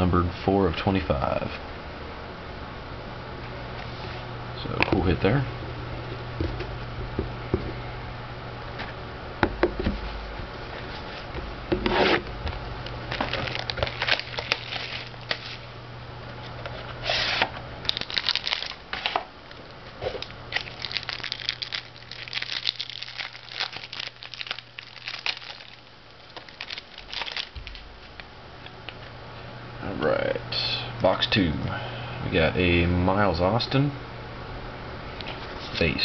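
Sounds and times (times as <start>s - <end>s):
plastic wrap crinkling: 13.1s - 15.6s, 17.8s - 28.2s.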